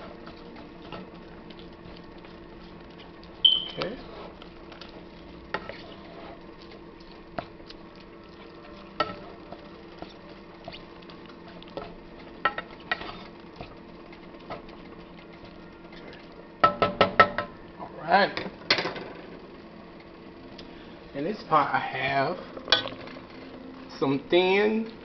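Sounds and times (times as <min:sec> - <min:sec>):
wooden spoon scraping a pan: 0:00.0 - 0:13.8
meat cooking: 0:00.0 - 0:25.0.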